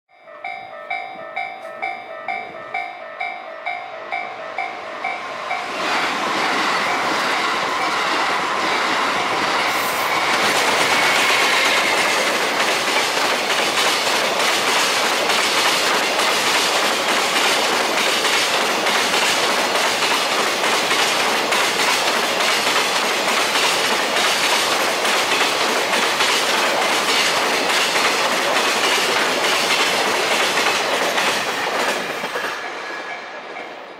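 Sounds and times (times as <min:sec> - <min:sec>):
level crossing bell ringing: 0:00.1 - 0:05.7
freight train rumbling past: 0:00.3 - 0:33.9
wheels clacking over rail joints: 0:05.1 - 0:32.6.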